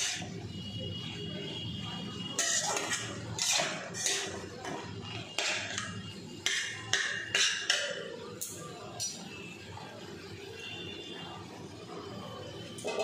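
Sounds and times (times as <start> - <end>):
metal spoon scraping pan: 2.3 - 7.8, 12.8 - 13.0.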